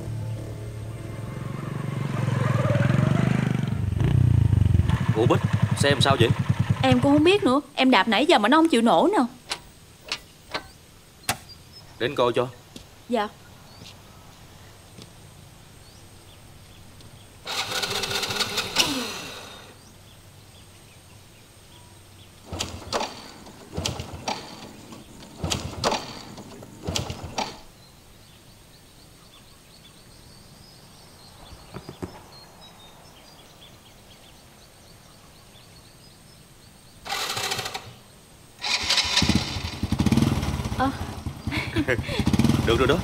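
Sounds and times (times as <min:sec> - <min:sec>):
motorbike kick-start cranking: 0:17.5 - 0:19.7, 0:22.4 - 0:27.7, 0:37.1 - 0:38.0, 0:38.6 - 0:43.0.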